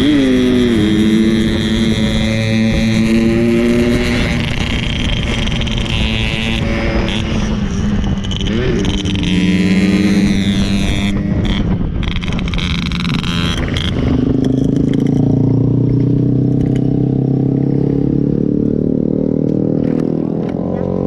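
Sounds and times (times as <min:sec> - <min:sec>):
two-stroke motorcycle engine running: 0:00.0 - 0:21.0.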